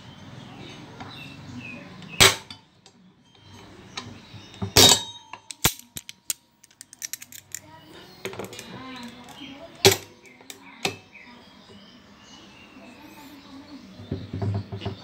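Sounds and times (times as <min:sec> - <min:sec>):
sharp metal bangs: 0:02.1 - 0:02.7, 0:04.6 - 0:05.9.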